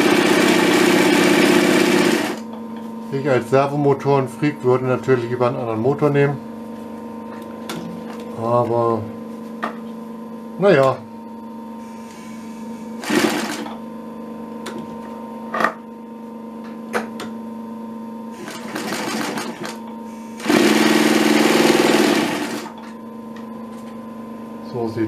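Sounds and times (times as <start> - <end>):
sewing machine stitching: 0.0 - 2.4, 13.0 - 13.7, 18.4 - 19.8, 20.4 - 22.8
sewing machine motor humming: 0.0 - 2.5, 12.9 - 13.8, 18.3 - 22.8.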